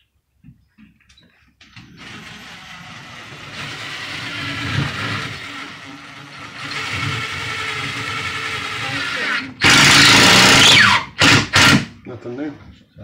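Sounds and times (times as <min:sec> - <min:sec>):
cordless drill driving screws: 0:01.7 - 0:11.9.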